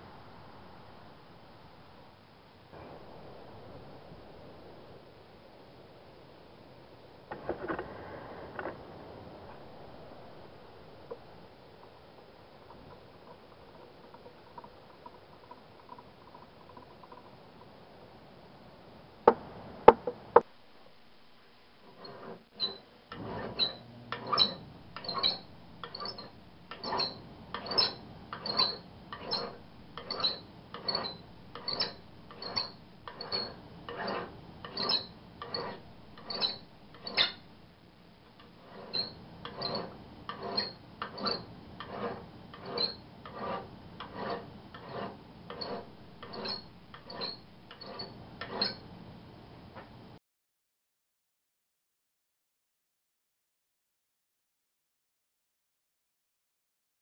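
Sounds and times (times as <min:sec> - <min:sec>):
hand file rasping on metal: 0:21.9 - 0:37.4, 0:38.4 - 0:48.8.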